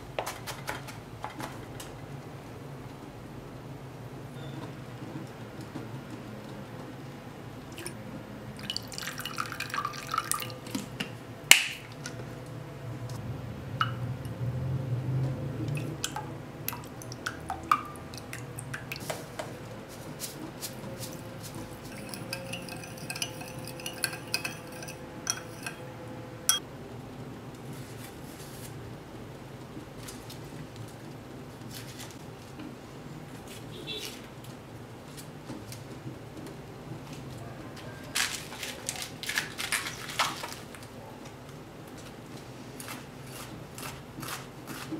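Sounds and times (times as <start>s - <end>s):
liquid pouring into a bowl: 8.6s - 10.9s, 21.8s - 25.8s
glass clinking against bowl: 21.9s - 25.9s.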